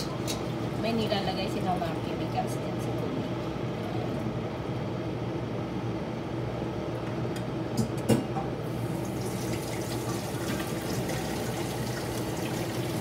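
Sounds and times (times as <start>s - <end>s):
kettle water boiling: 8.6s - 13.0s.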